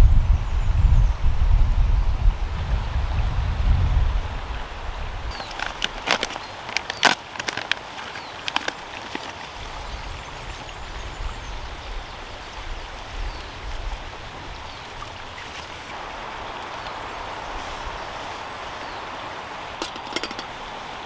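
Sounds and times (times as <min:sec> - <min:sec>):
mountain stream rushing: 0:04.1 - 0:21.0
sharp clicks and crinkles: 0:05.3 - 0:09.5.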